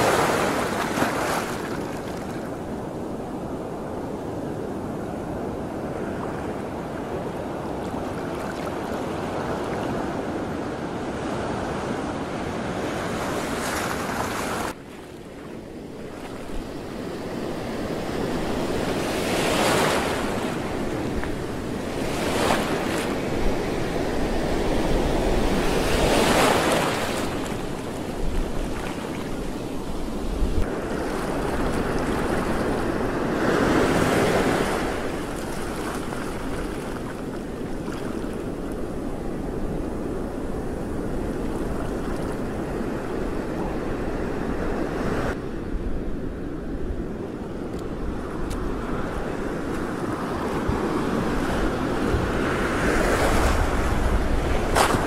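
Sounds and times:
sea waves washing: 0:11.4 - 0:45.4
wind buffeting microphone: 0:15.9 - 0:55.0.

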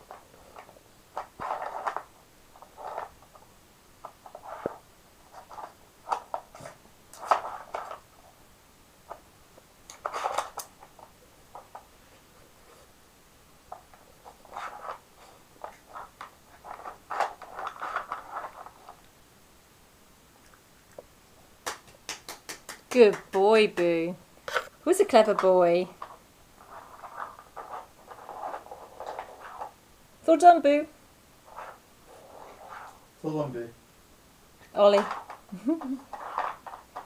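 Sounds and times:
plastic puzzle scrapes and clicks: 0:00.0 - 0:08.3, 0:09.9 - 0:12.9, 0:13.7 - 0:19.1, 0:24.4 - 0:29.8, 0:31.4 - 0:33.0, 0:34.8 - 0:37.0.

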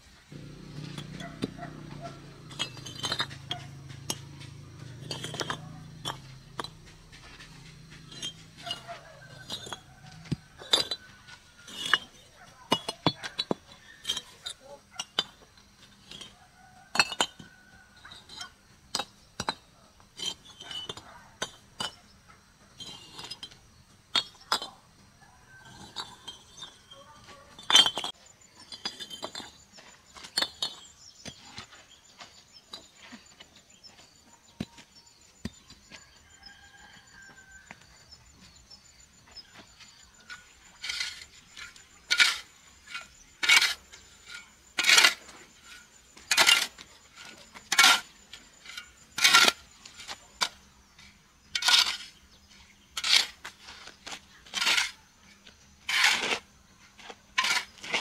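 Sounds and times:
hard objects clinking and knocking: 0:00.3 - 0:33.1.

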